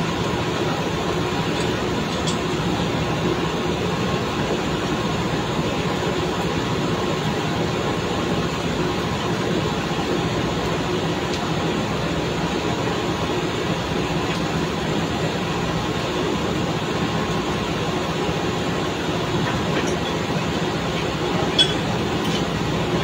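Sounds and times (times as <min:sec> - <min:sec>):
sharp metallic clink: 0:21.5 - 0:22.4.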